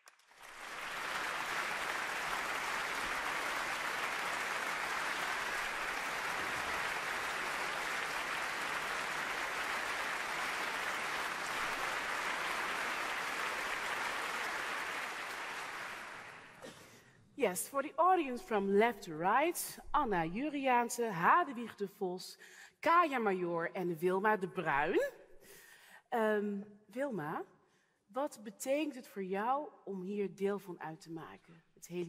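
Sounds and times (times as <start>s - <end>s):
audience applause: 0.0s - 16.6s.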